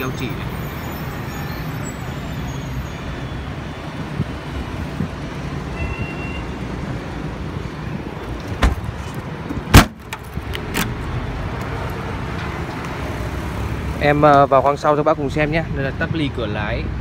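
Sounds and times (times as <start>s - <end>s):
road traffic rumbling: 0.0s - 17.0s
car boot lid thud: 8.5s - 8.9s, 9.6s - 10.2s.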